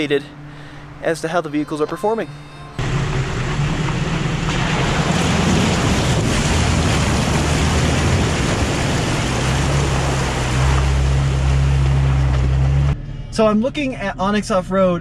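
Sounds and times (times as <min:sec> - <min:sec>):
engine running low: 0:02.4 - 0:15.0
tyre splashing through water: 0:03.5 - 0:12.9.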